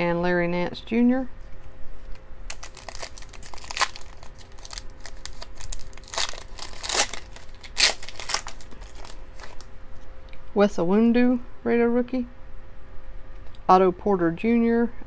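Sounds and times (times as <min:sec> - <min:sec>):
foil wrapper crinkling: 0:02.1 - 0:09.7
foil pack torn open: 0:02.5 - 0:09.7.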